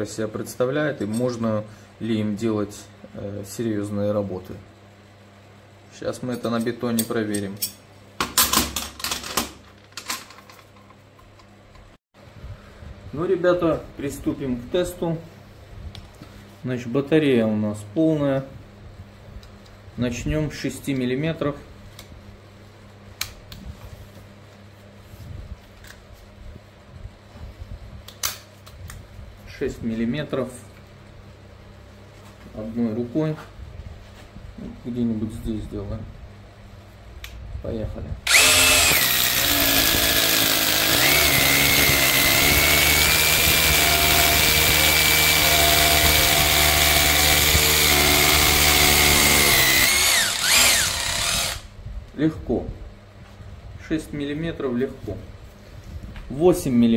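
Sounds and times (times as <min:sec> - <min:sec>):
steady low hum: 0:10.5 - 0:56.9
rotary hammer drilling concrete: 0:38.3 - 0:51.7.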